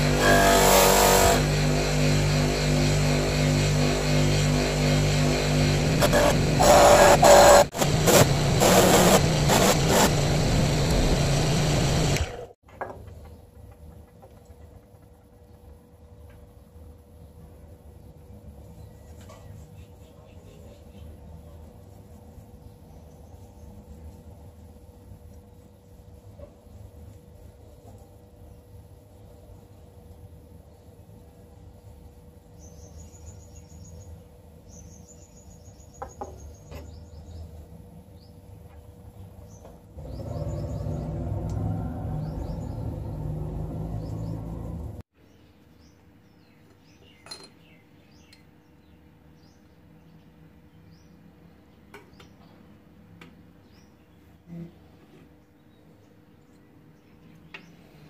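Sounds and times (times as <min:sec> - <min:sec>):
loud steady grinding: 0:00.0 - 0:12.6
low motor hum: 0:00.0 - 0:12.6, 0:39.9 - 0:45.0.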